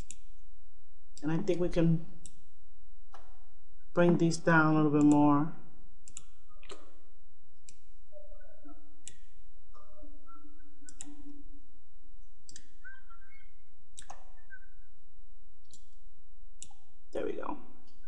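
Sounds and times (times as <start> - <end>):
computer mouse clicks: 0.0 - 0.3, 6.0 - 7.0, 9.0 - 9.4, 10.8 - 11.4, 12.4 - 14.6.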